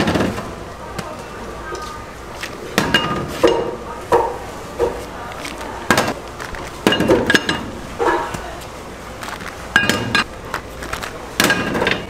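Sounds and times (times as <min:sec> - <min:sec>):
metal cookware clinking: 0:02.8 - 0:04.4, 0:06.8 - 0:08.4, 0:09.7 - 0:10.3.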